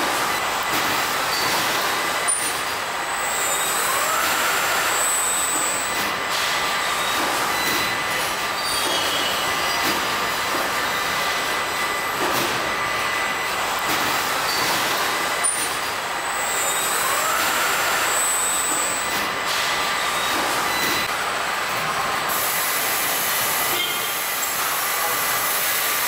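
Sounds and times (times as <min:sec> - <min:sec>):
machine whine rising and falling: 0:00.0 - 0:08.3, 0:09.5 - 0:21.1
machinery hiss and hum: 0:00.0 - 0:26.0.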